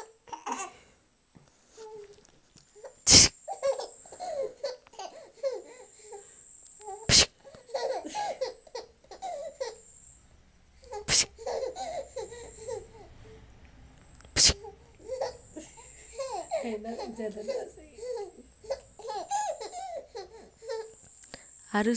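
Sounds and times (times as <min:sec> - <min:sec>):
baby giggling: 0:02.8 - 0:05.9, 0:06.9 - 0:09.8, 0:10.9 - 0:13.1, 0:14.4 - 0:21.0.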